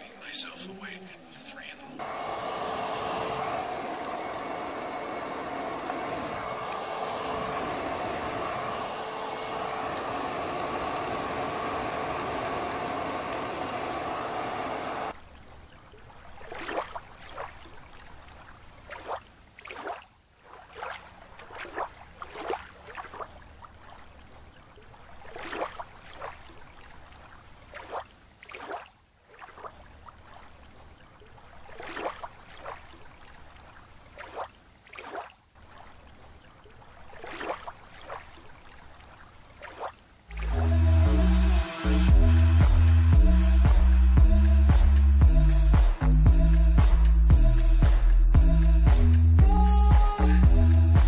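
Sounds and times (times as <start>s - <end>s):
steady hum: 0.0s - 15.2s, 40.3s - 51.0s
water splashing from swimming: 0.0s - 40.8s, 41.6s - 46.1s.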